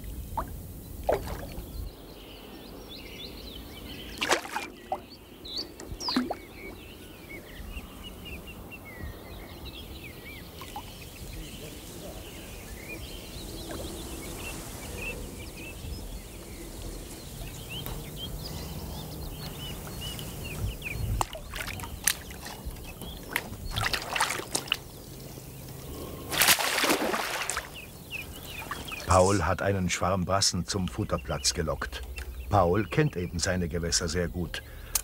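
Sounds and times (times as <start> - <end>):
small birds chirping: 0.0 - 35.0
water splashing around a net: 4.2 - 4.9, 21.2 - 22.6, 23.3 - 24.9, 26.3 - 27.8.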